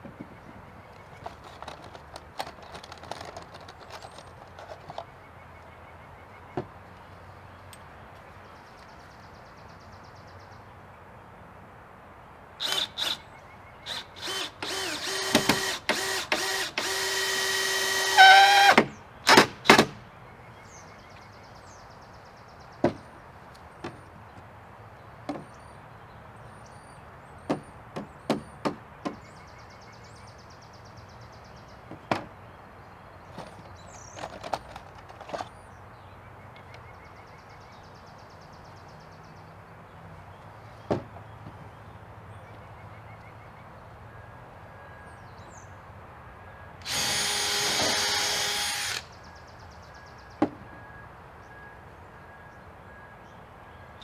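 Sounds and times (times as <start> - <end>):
cordless drill driving screws: 12.6 - 13.2, 13.9 - 19.8, 46.8 - 49.1.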